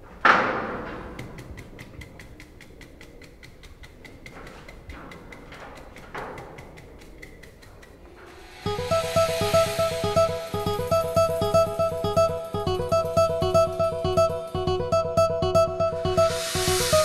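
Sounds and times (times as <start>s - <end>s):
fast clock ticking: 1.2s - 17.0s.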